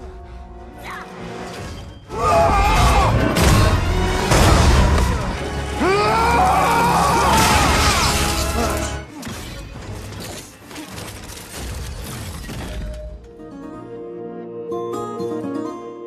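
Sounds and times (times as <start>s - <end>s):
dramatic film score: 0.0s - 15.2s
crashing and smashing effects: 1.5s - 5.6s, 7.0s - 13.0s.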